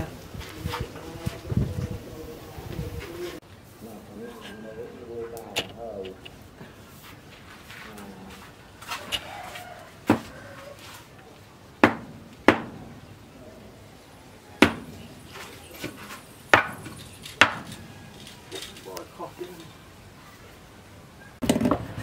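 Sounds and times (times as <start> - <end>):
sharp wooden knocks: 10.0 - 10.3, 11.8 - 13.0, 14.6 - 15.0, 15.8 - 17.9.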